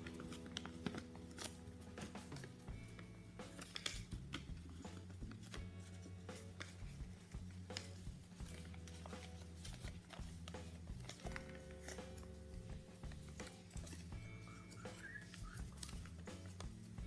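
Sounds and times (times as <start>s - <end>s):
paper being folded and creased: 0.0s - 17.0s
quiet background music: 0.0s - 17.0s.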